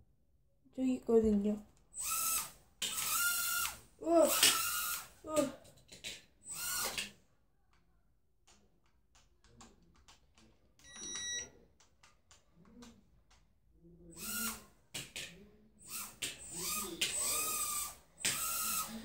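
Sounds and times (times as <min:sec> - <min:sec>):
controller clicks: 0:08.5 - 0:13.5
short electronic beep: 0:10.9 - 0:11.5.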